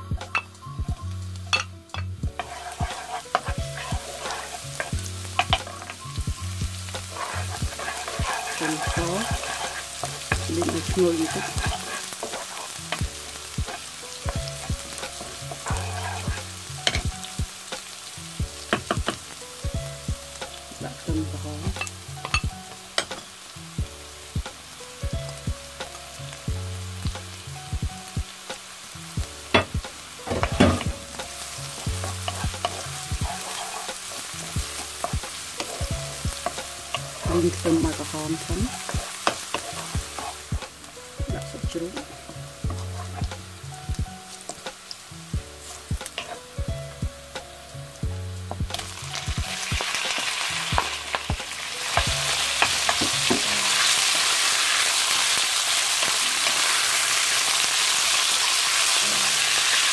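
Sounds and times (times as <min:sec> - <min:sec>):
shallot and garlic sizzling in oil: 0:00.0 - 0:59.9
wooden spatula scraping a pan: 0:01.5 - 0:17.4, 0:29.5 - 0:44.7, 0:45.5 - 0:46.7, 0:48.5 - 0:59.6.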